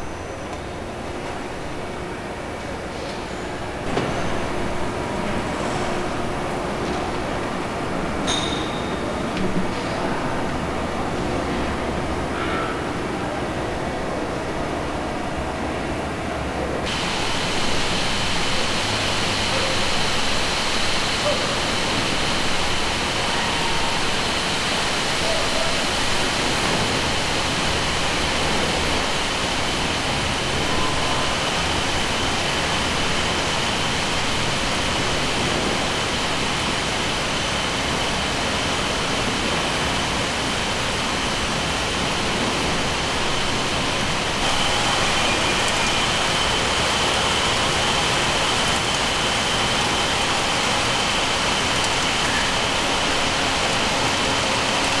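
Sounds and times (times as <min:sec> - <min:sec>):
winding machines running: 0:16.9 - 0:55.0.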